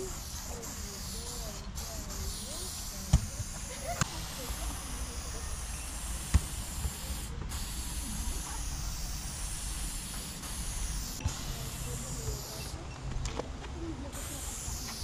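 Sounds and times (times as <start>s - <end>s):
aerosol spray can hissing: 0.0s - 12.8s, 14.1s - 15.0s.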